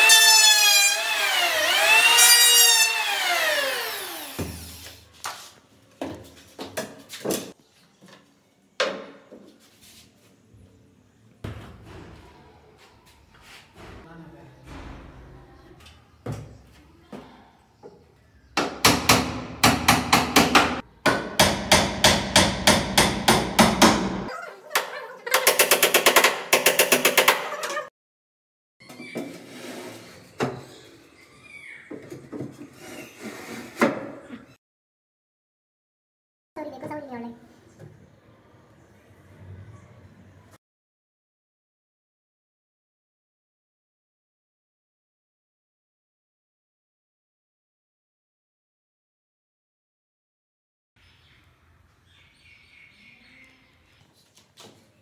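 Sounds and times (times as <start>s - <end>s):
electric hand planer whining: 0.0s - 4.8s
hammer nailing wood: 18.6s - 24.3s, 25.4s - 27.5s.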